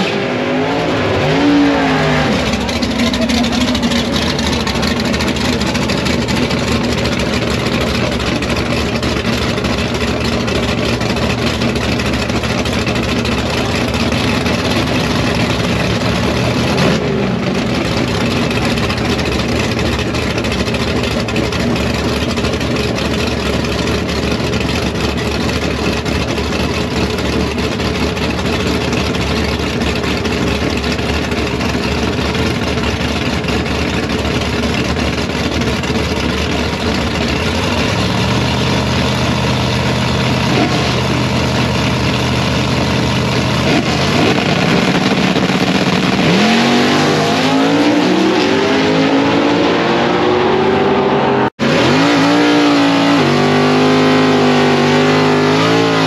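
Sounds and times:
racing car engines idling: 0.3s - 56.0s.

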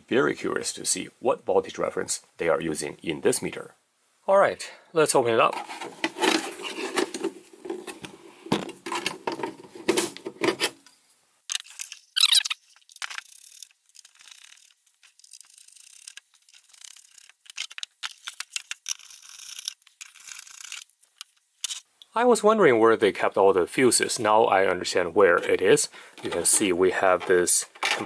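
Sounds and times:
high squeak: 11.6s - 17.4s.

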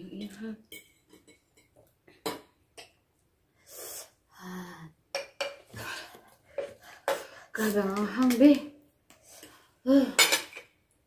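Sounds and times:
tableware clinking on table: 10.2s - 10.7s.

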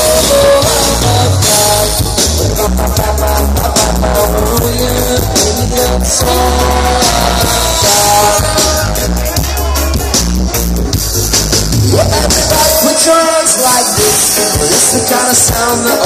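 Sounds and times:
live reggae band playing: 0.0s - 16.0s.

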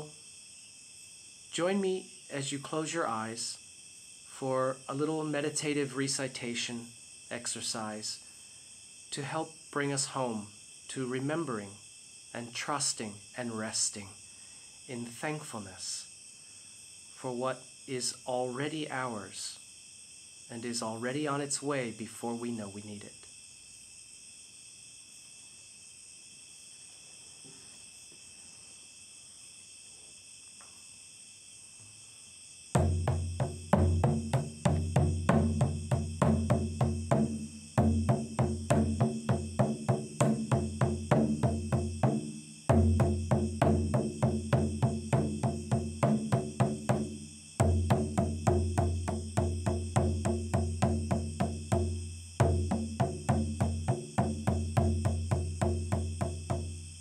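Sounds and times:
crickets chirring: 0.0s - 57.0s
frame drum beating: 32.8s - 56.8s.

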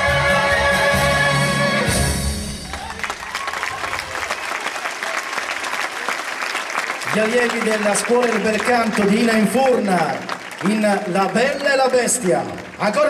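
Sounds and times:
singing with orchestral backing: 0.0s - 2.6s
audience applause: 2.5s - 13.0s.

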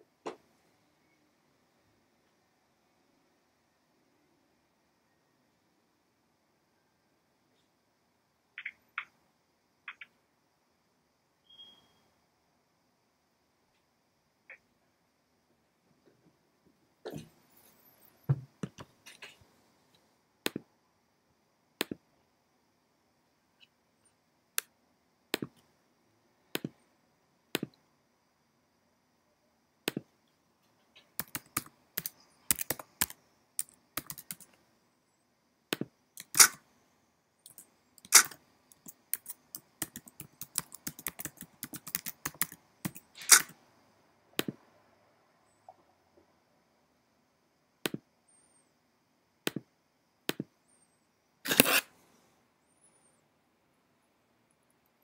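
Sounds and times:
computer keyboard typing: 31.2s - 34.5s, 37.5s - 43.5s.

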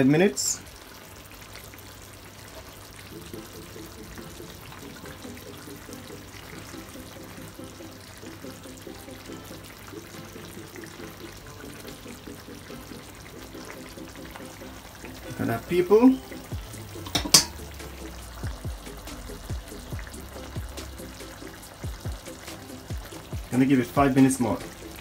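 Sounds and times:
sauce simmering in frying pan: 0.0s - 25.0s
quiet background music: 2.6s - 25.0s.

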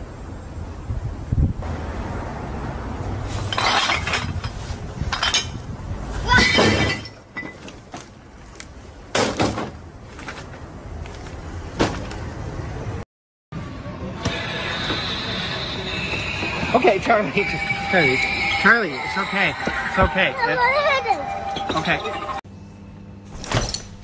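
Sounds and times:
glass bottles clinking: 3.5s - 5.6s, 6.4s - 7.8s.

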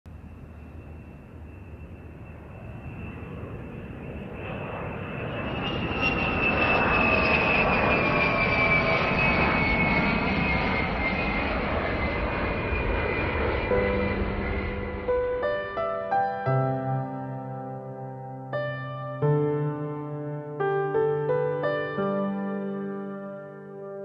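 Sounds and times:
high engine whine: 0.1s - 16.2s
jet airliner flying overhead: 0.1s - 24.0s
soft piano notes: 13.7s - 24.0s.

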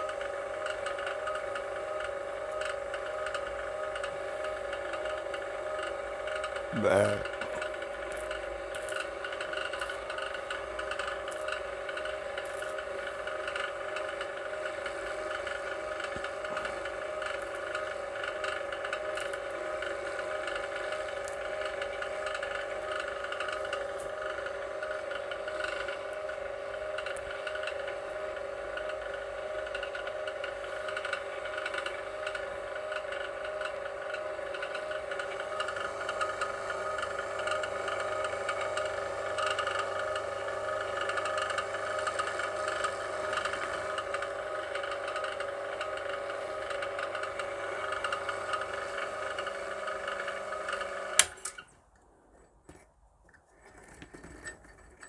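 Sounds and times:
electric wire stripper whirring: 0.0s - 51.9s.

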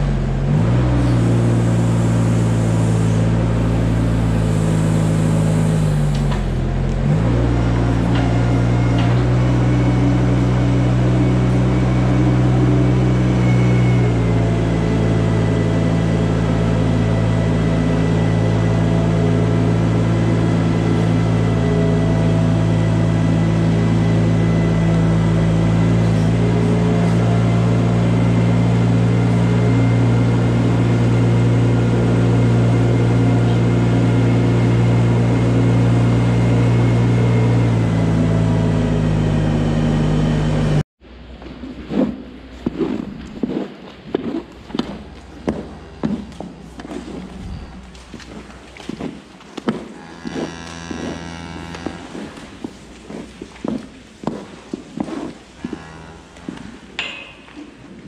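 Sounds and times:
loader engine running: 0.0s - 43.3s, 44.4s - 58.0s.

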